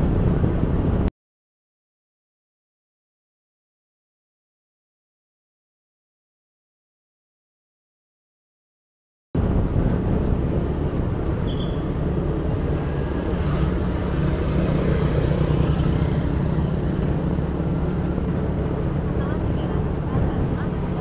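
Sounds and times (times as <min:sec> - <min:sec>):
wind noise on microphone: 0:00.0 - 0:01.1, 0:09.4 - 0:21.0.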